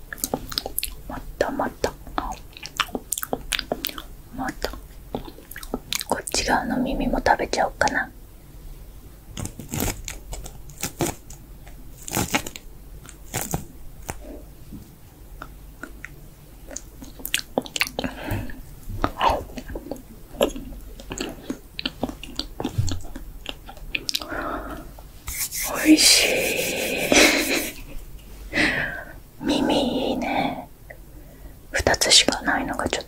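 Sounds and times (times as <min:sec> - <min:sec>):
wet mouth clicks and smacks: 0:00.1 - 0:06.4, 0:15.4 - 0:18.1.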